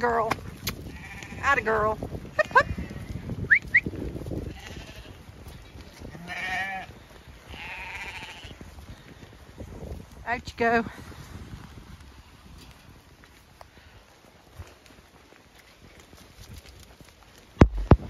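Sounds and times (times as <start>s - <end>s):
sheep bleating: 0.9s - 2.9s, 4.4s - 5.2s, 6.0s - 8.6s.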